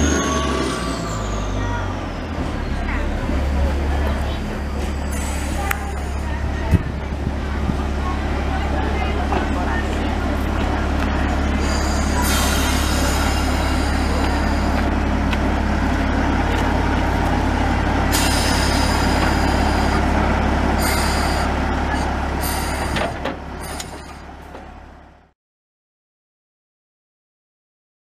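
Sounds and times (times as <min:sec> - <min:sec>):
diesel locomotive idling: 0:00.0 - 0:25.3.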